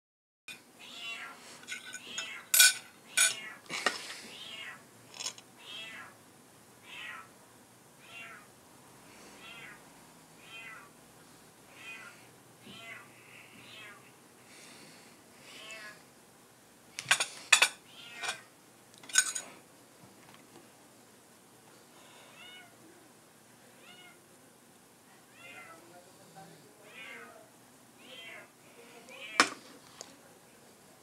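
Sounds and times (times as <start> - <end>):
cat meowing: 0.8 - 1.4, 4.3 - 4.8, 5.6 - 6.2, 6.8 - 7.3, 8.0 - 8.5, 9.4 - 9.8, 10.4 - 10.9, 11.7 - 14.1, 17.9 - 18.4, 22.3 - 22.8, 23.8 - 24.2, 25.3 - 25.8, 26.8 - 28.5
cutlery clinking on plate: 1.7 - 4.0, 17.0 - 18.4, 19.0 - 19.5.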